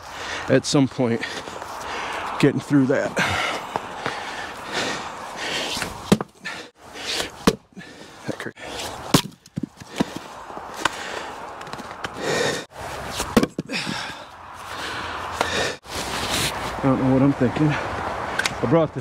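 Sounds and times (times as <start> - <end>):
maul chopping wood: 6.1 - 6.4, 7.2 - 7.7, 9.1 - 10.2, 13.2 - 14.0.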